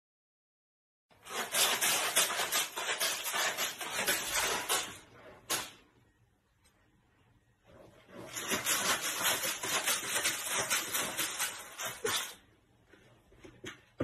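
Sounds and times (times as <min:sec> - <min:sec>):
cat scratching litter: 0:01.1 - 0:05.9, 0:07.7 - 0:12.5.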